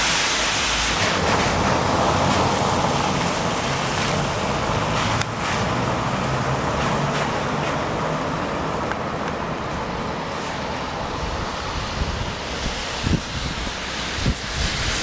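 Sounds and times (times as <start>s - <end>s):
traffic: 0.0s - 15.0s
vehicle engine humming low: 0.9s - 15.0s
wind buffeting microphone: 8.8s - 15.0s.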